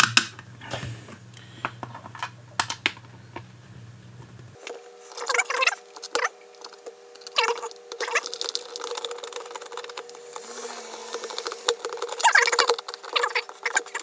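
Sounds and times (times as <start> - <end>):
clicks and scrapes of plastic parts: 6.0 - 14.0.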